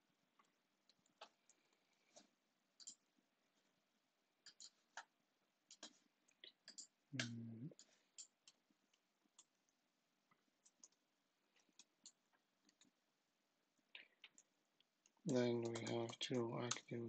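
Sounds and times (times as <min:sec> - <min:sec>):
keyboard and mouse clicks: 0:02.8 - 0:03.0, 0:04.4 - 0:05.1, 0:05.7 - 0:08.6, 0:10.3 - 0:11.0, 0:14.0 - 0:17.0.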